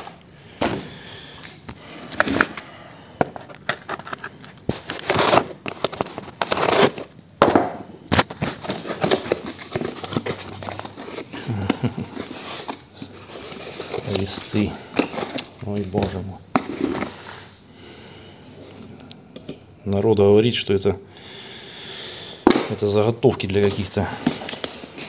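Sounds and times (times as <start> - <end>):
cardboard crinkling: 3.3 - 7.2, 8.1 - 17.6, 23.6 - 25.0
packing tape tearing: 3.4 - 7.2, 8.1 - 17.5.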